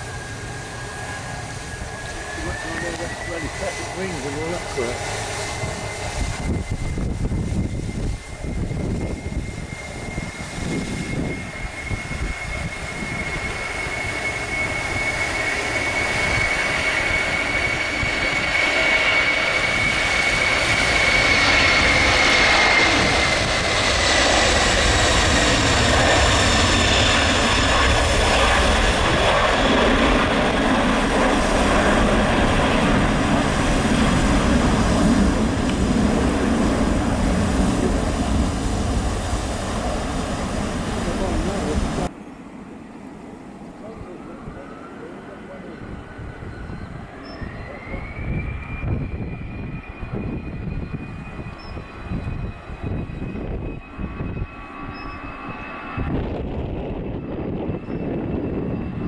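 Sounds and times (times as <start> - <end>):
jet engines roaring at take-off: 0.0 - 59.0.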